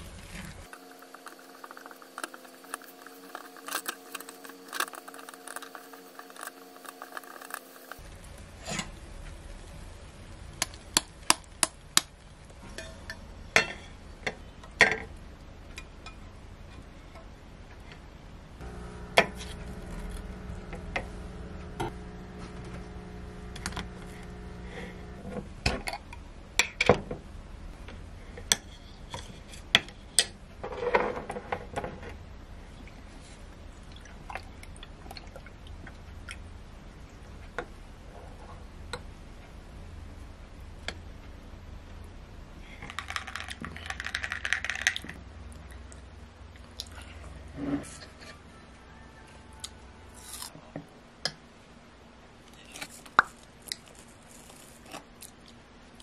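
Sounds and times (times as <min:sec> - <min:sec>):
steady hum: 0:00.0 - 0:29.1
spatula scraping a pan: 0:00.2 - 0:08.0, 0:19.2 - 0:20.5.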